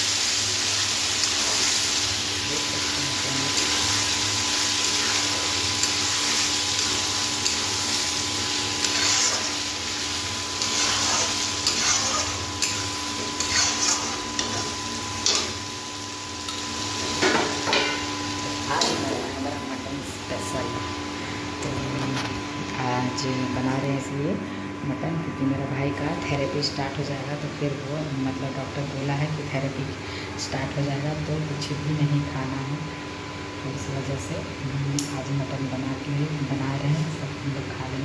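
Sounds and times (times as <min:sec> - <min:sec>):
meat sizzling in a pan: 0:00.0 - 0:19.3
spatula scraping metal pan: 0:08.8 - 0:09.6, 0:10.6 - 0:15.5.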